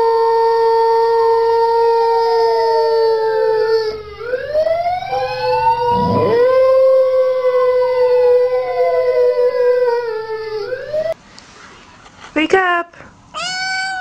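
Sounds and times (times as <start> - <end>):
siren rising and falling: 4.2 - 9.2
dog howling: 5.5 - 10.7.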